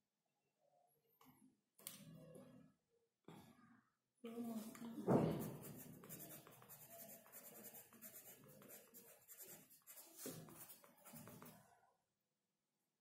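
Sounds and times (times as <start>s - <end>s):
pencil scratching on paper: 5.1s - 11.6s.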